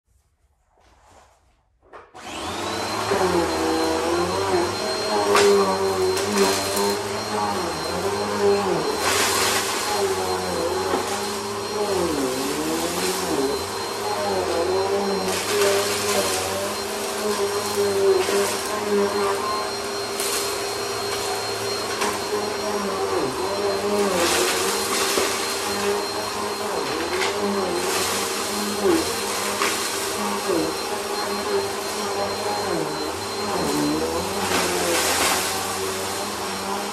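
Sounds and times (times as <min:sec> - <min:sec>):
upright vacuum running: 0:02.2 - 0:36.9
crumbs rattling up vacuum: 0:32.3 - 0:36.5.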